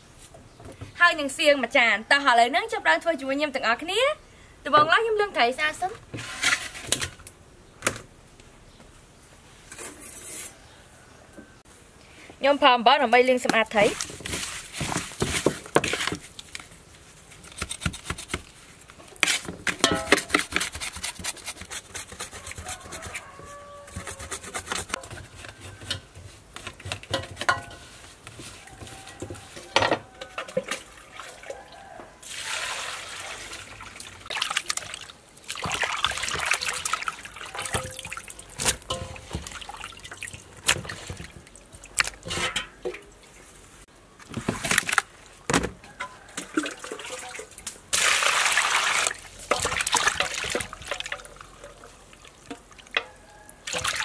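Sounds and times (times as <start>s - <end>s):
water splashing: 30.6s - 31.6s, 32.2s - 43.0s, 46.3s - 52.9s, 53.6s - 54.0s
wet squelching of fish: 32.3s - 42.3s.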